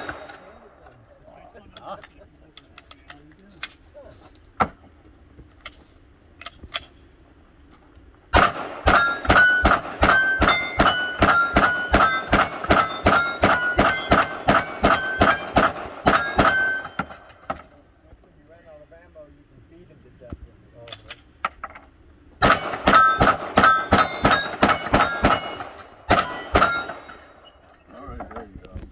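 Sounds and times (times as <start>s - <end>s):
steel plates ringing: 0.0s - 0.7s, 8.8s - 17.4s, 22.4s - 27.9s
rapid pistol fire: 8.3s - 17.2s, 22.4s - 27.3s.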